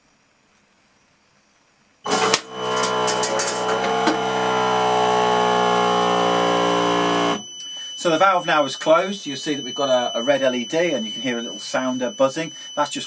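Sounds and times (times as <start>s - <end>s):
valve actuator motor running: 2.1s - 7.4s
high steady buzzer: 2.1s - 13.0s.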